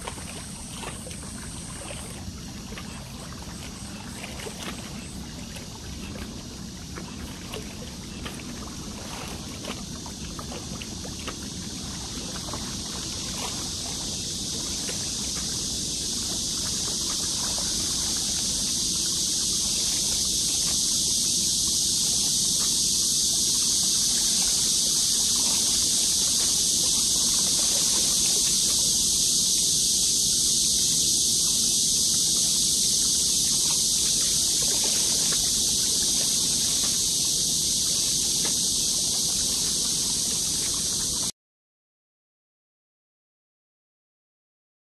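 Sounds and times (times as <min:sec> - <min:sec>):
small waves lapping on rocks: 0:00.0 - 0:29.2
rushing wind hiss: 0:05.0 - 0:41.3.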